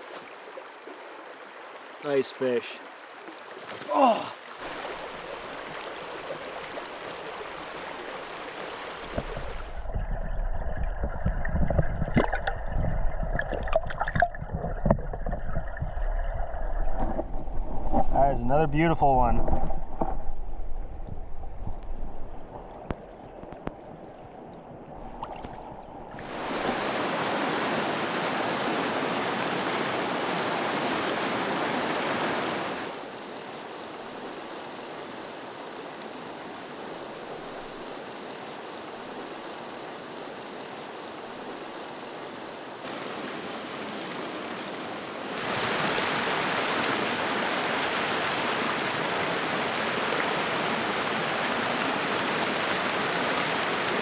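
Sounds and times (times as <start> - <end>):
river water rushing over rocks: 0.0 - 9.9, 25.0 - 33.0, 42.8 - 54.0
faint knocks and splashes: 2.9 - 7.7, 9.0 - 18.2, 24.5 - 26.9.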